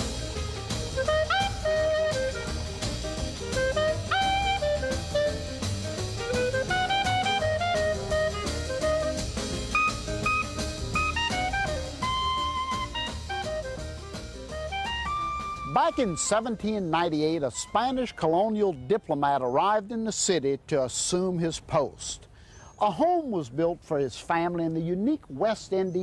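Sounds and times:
drum kit: 0.0s - 16.9s
jazz horn melody: 0.0s - 18.7s.

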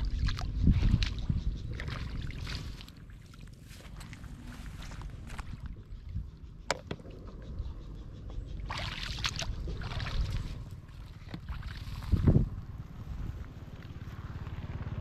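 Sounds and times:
floodwater splashing: 8.7s - 12.3s.

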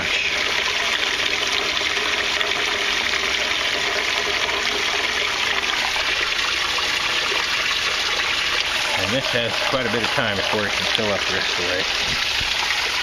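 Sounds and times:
water pouring into a tank: 0.0s - 13.0s.

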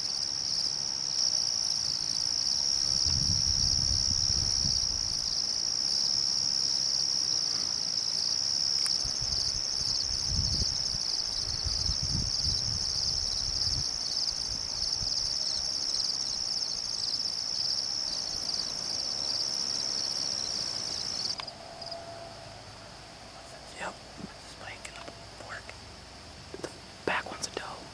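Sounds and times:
crickets trilling: 0.0s - 27.9s
low rumbles on microphone: 2.8s - 5.3s.

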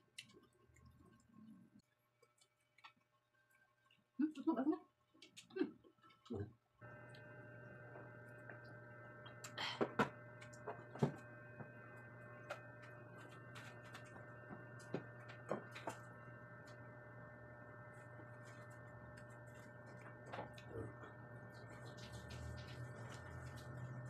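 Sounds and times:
steady low hum: 6.3s - 24.0s.

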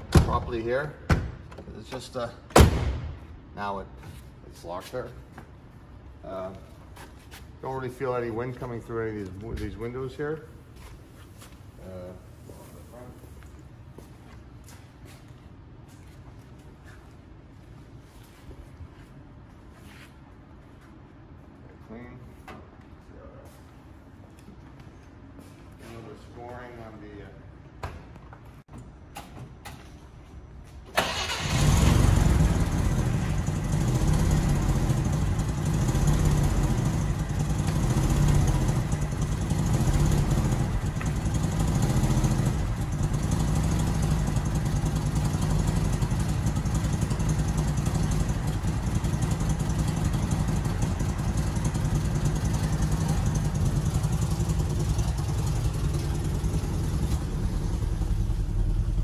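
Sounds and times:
car engine starting and idling: 30.8s - 59.0s.

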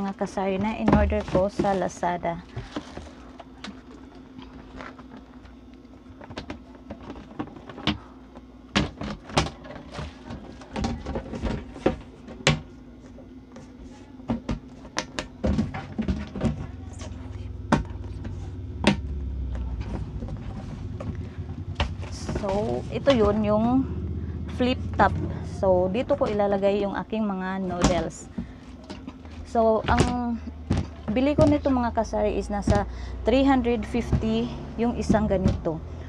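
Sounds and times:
plastic bin knocking and clicking: 0.6s - 1.8s.

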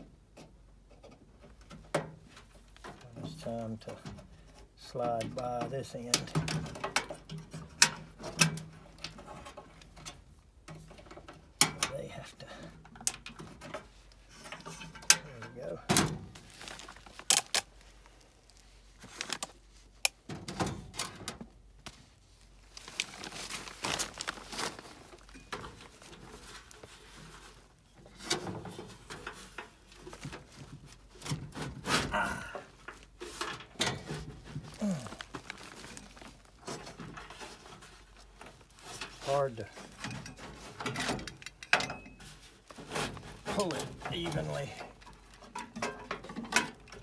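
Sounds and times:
scraping and rustling: 13.4s - 20.0s, 21.1s - 41.4s, 42.2s - 47.0s.

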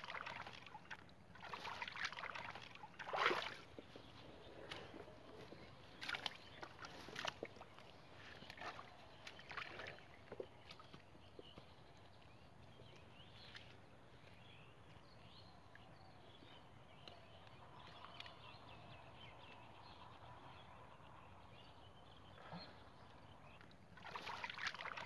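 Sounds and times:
hands splashing in muddy water: 0.0s - 11.2s, 23.9s - 25.0s.

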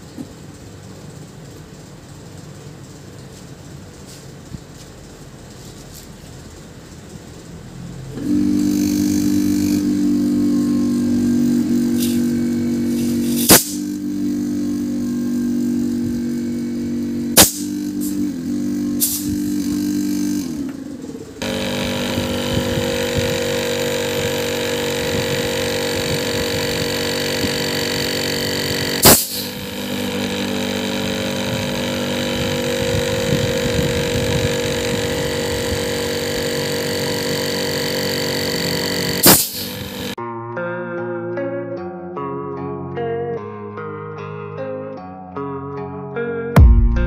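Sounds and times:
refrigerator compressor humming: 6.1s - 40.2s
sharp click: 13.3s - 13.9s, 17.4s - 18.2s.

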